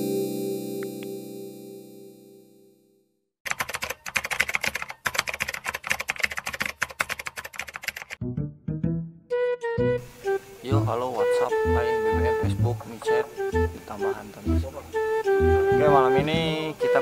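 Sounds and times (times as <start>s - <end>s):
computer keyboard typing: 3.4s - 8.2s
held musical chord: 8.2s - 17.0s
music notes: 8.2s - 17.0s.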